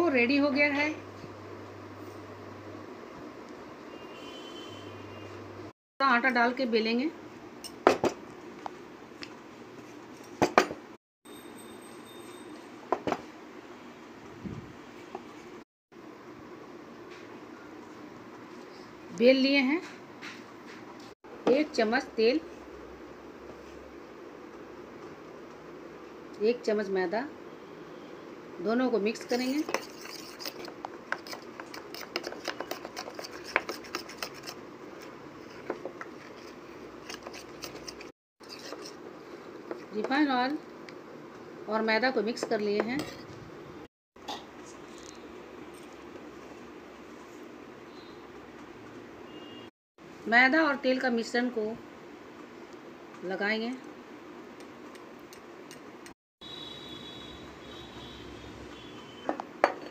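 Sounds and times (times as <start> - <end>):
metal spoon scraping steel bowl: 29.1 - 39.0.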